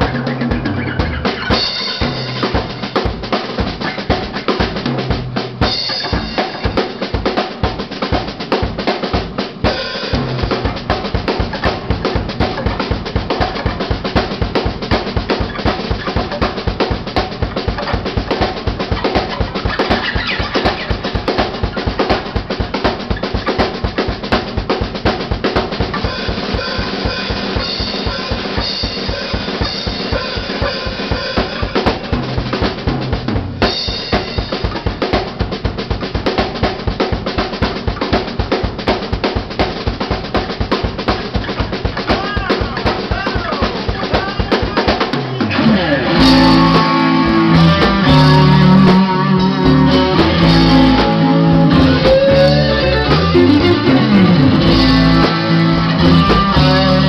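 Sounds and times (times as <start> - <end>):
bass guitar: 0.0 - 57.0
drum kit beat: 0.0 - 57.0
electric guitars: 0.0 - 57.0
fast kick drum pulse: 30.1 - 45.4.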